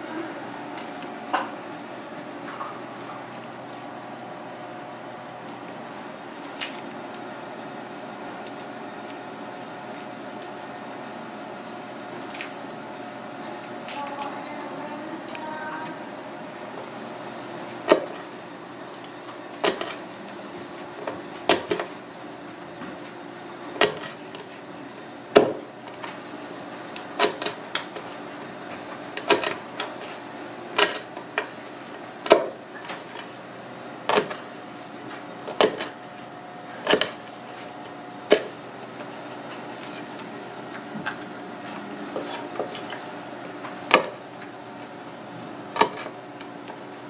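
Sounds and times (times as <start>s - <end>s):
faint steady hum: 0.0s - 22.8s.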